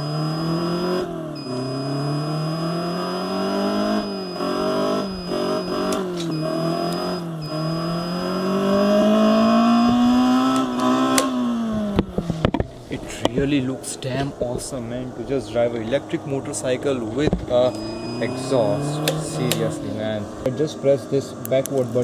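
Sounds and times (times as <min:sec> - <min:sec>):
simulated engine sound revving: 0:00.0 - 0:21.4
thin high tone: 0:00.1 - 0:09.8, 0:15.1 - 0:20.7.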